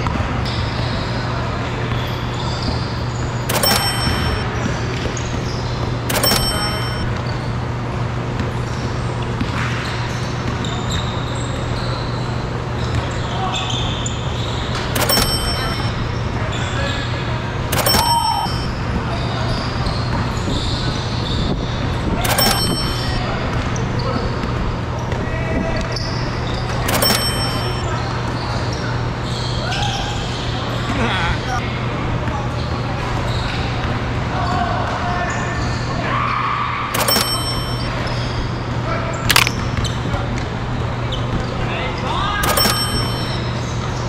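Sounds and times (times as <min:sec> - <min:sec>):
sneakers squeaking: 0:00.0 - 0:25.2, 0:25.8 - 0:31.0, 0:37.0 - 0:41.7
players moving: 0:03.5 - 0:04.4, 0:06.1 - 0:07.0, 0:15.0 - 0:16.0, 0:17.7 - 0:18.8, 0:22.2 - 0:23.3, 0:26.9 - 0:27.9
high shoe squeak: 0:09.7 - 0:17.1.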